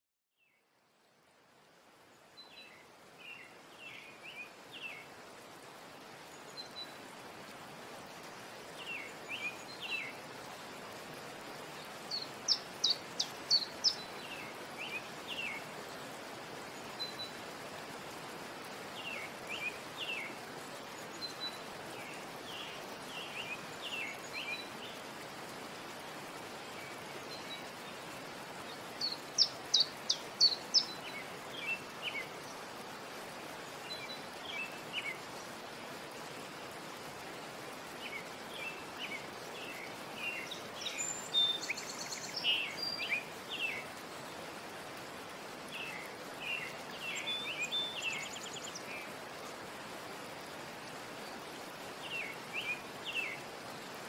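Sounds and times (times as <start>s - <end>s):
steady background hiss: 0.4s - 54.0s.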